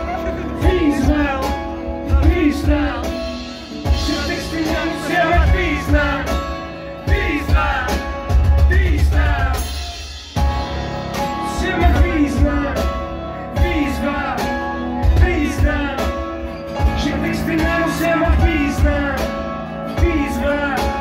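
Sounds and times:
person singing: 0.0 - 10.0, 10.6 - 21.0
acoustic band music: 0.0 - 21.0
cajon beat: 0.1 - 13.0.

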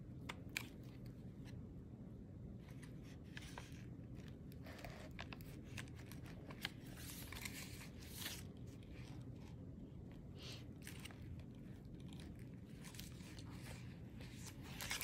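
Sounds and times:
paper rustling and crinkling: 2.6 - 9.6, 10.4 - 15.0.

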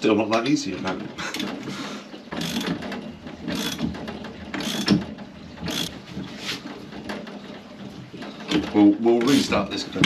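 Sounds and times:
metallic clicking: 2.4 - 2.8
spanner turning threaded rod: 2.4 - 2.8, 3.5 - 3.9, 4.6 - 5.0, 5.7 - 5.9.

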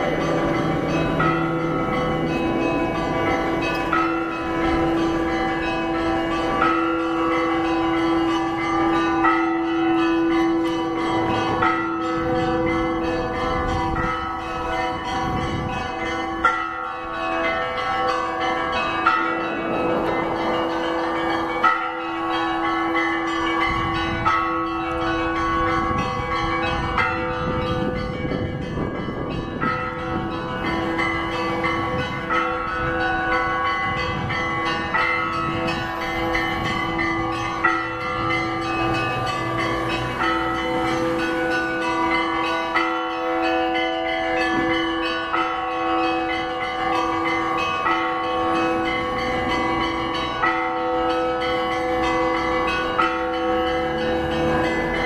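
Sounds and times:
church bells ringing: 0.0 - 55.0.

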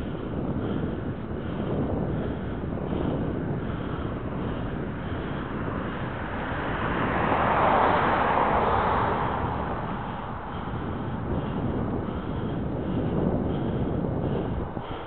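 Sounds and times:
road noise: 0.0 - 15.0
wind rushing over microphone: 0.0 - 15.0
car passing close by: 5.8 - 11.2.

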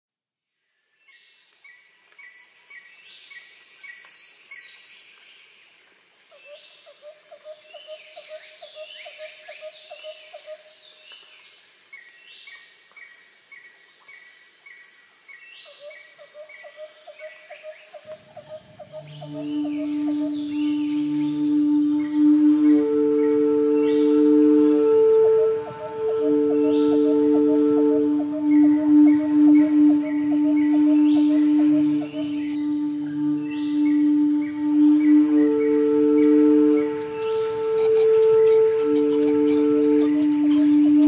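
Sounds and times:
high insect drone: 4.9 - 41.0
rhythmic pulsing call: 17.9 - 41.0
low held musical tone: 18.1 - 41.0
birds chirping and calling: 36.7 - 41.0.

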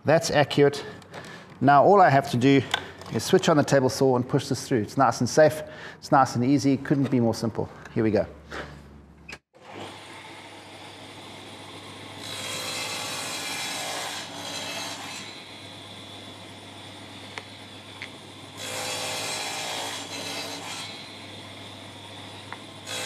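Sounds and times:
saw cutting plywood: 9.6 - 23.0
table saw running: 9.6 - 23.0.

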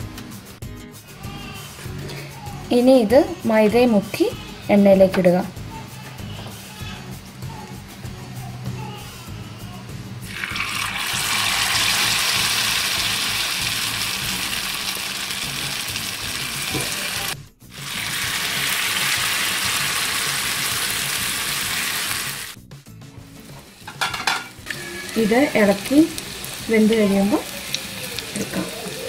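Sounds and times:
food deep-frying in oil: 10.3 - 22.6, 24.0 - 29.0.

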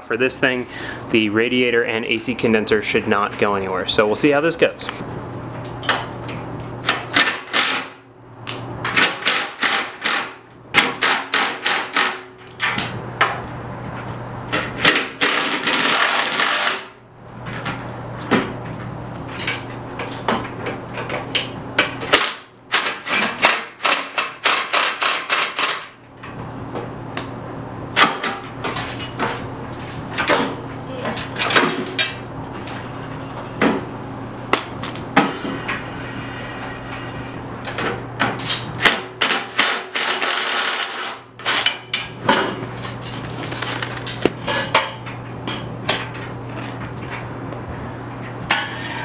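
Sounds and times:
steady low hum: 0.0 - 7.2
impact wrench hammering: 8.9 - 12.3.

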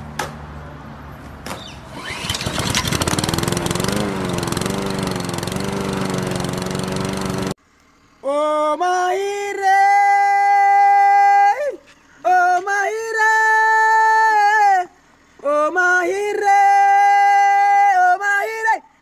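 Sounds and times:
high voice singing long notes: 8.2 - 18.9.

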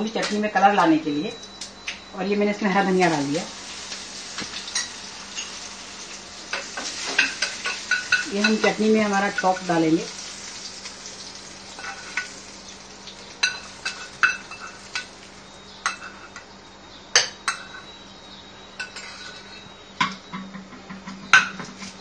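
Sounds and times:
metal spoon scraping a pan: 6.4 - 9.8, 11.6 - 12.4, 13.4 - 15.1, 15.8 - 16.4, 18.8 - 19.6.

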